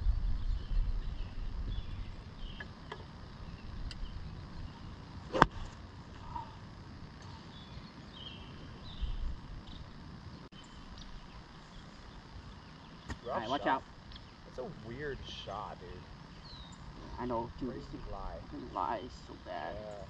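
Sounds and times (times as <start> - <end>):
wind rumble on microphone: 0.0 - 2.6
golf club striking ball: 5.3 - 5.8.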